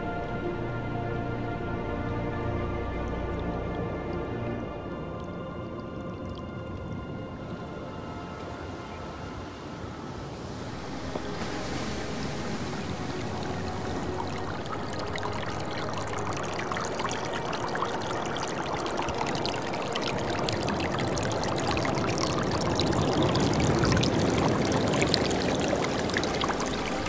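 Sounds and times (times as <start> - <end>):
ocean surf fizzing: 7.5 - 27.0.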